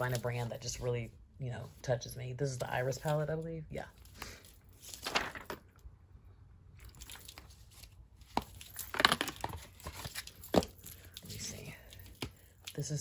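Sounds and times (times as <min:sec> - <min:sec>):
cardboard packaging rustling: 0:04.6 - 0:05.8, 0:06.8 - 0:11.2.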